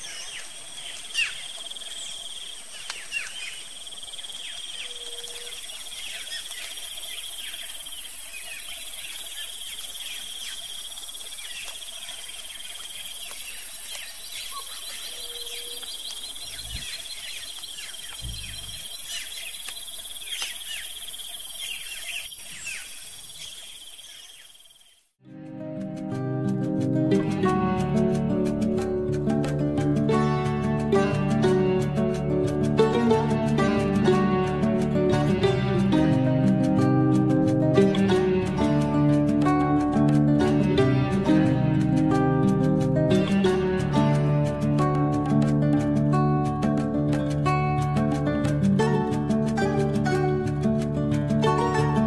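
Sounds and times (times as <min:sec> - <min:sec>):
bird chirps: 0:00.0 - 0:25.1
high-pitched insect trill: 0:00.0 - 0:25.1.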